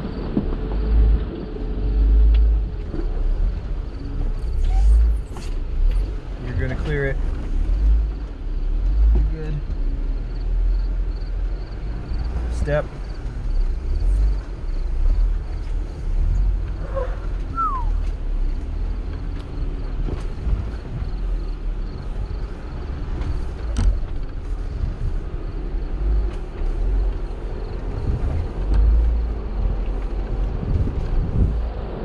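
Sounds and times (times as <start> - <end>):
vehicle crawling over rock: 0.0 - 32.0
falling squeak: 4.5 - 5.6, 16.8 - 18.0.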